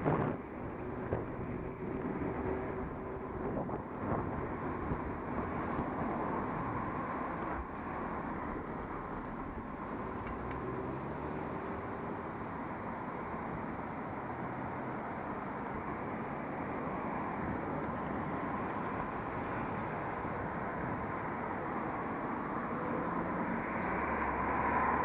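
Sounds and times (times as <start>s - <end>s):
wind on microphone: 0.0s - 7.6s
travel rumble: 0.0s - 25.0s.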